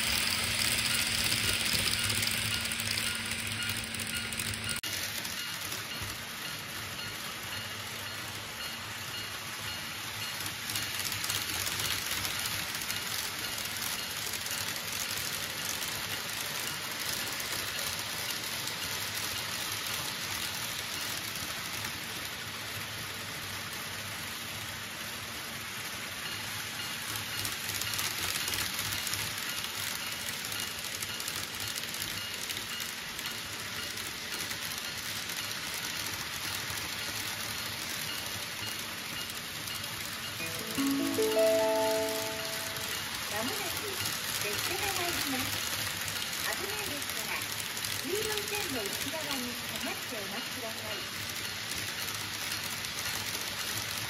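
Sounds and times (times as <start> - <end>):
small motors whirring: 0.0 - 4.8
model train wheels rattling: 0.0 - 40.4, 43.0 - 54.0.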